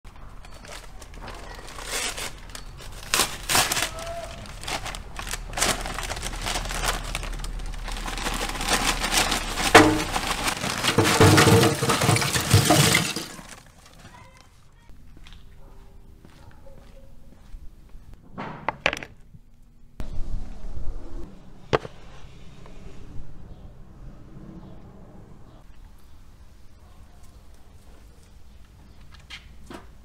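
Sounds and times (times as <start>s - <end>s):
paper sack rustling: 0.4s - 14.4s
charcoal clattering into metal pit: 8.1s - 14.0s.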